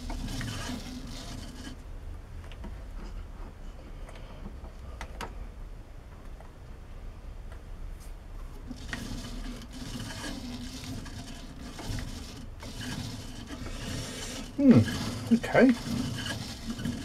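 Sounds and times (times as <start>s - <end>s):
lathe running with hum: 0.0s - 1.8s, 8.7s - 17.0s.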